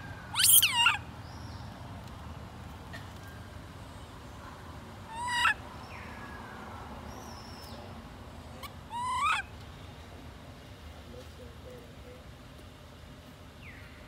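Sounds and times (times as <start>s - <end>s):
baby monkey crying: 0.3s - 1.0s, 5.1s - 5.6s, 8.6s - 9.5s.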